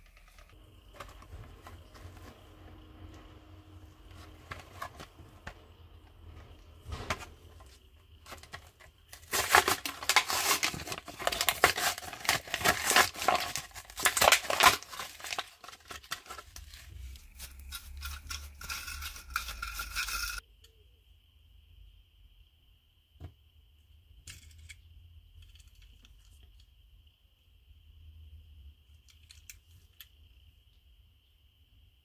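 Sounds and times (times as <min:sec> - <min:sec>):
plastic package crinkling: 0:08.2 - 0:19.0
card tearing: 0:08.3 - 0:16.8.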